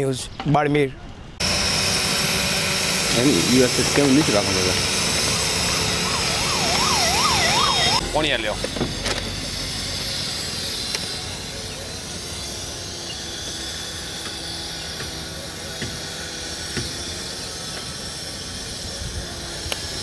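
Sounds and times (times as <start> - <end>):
siren-like warbling tone: 1.4 - 15.6.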